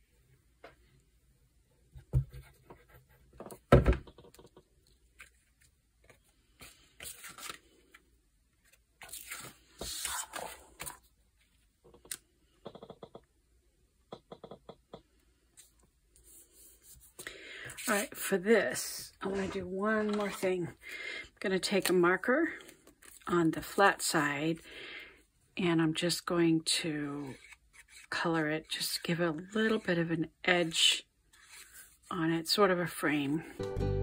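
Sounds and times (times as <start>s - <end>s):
paper sliding and rustling: 31.3s - 32.0s.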